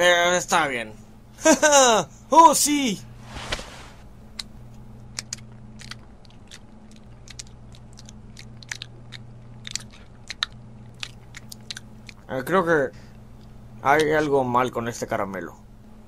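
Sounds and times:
faint low hum: 0:00.0 - 0:16.0
person biting candy: 0:05.2 - 0:12.2
wet mouth clicks chewing: 0:05.2 - 0:12.2.

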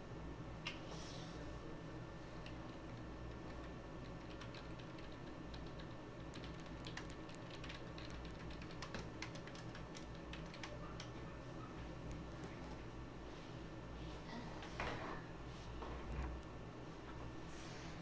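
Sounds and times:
low steady hum: 0:00.0 - 0:18.0
keyboard typing: 0:02.4 - 0:12.8.

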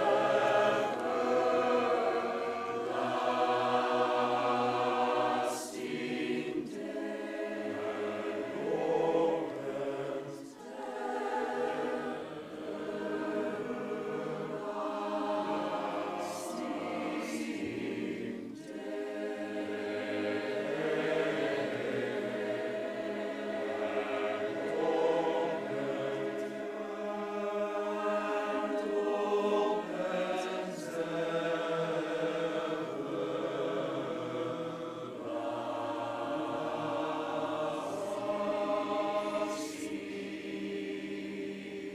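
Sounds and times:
mixed choir singing held chords: 0:00.0 - 0:41.9.

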